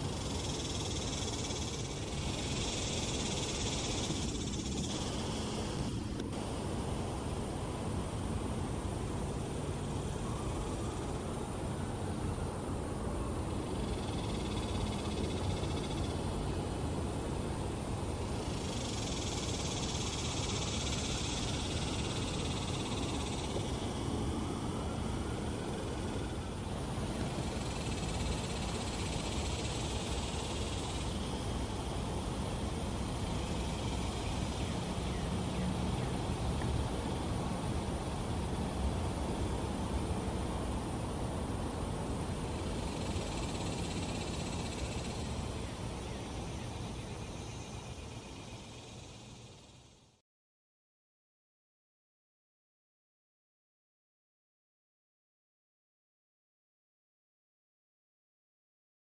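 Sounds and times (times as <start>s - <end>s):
hiss: 0.0s - 10.5s
faint high hiss: 0.0s - 50.2s
low outdoor background noise: 0.0s - 50.2s.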